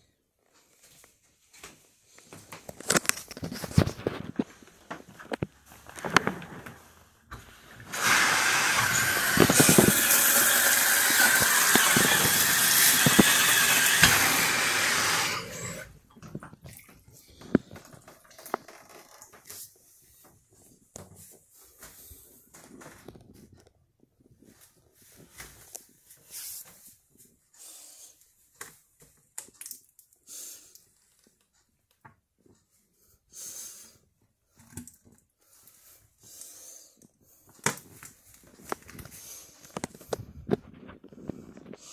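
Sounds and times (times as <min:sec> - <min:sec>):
water pouring into a bathtub: 0:07.4 - 0:19.2.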